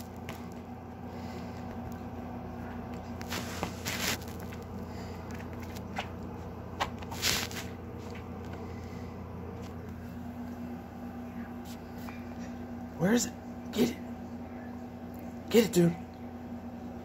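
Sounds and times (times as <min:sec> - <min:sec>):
steady low hum: 0:00.0 - 0:17.0
cat scuffing on rug: 0:03.0 - 0:04.7, 0:06.8 - 0:08.6.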